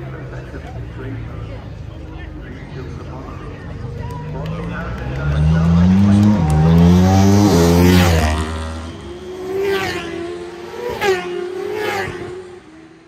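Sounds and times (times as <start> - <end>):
racing motorcycles at full throttle: 2.9 - 13.0.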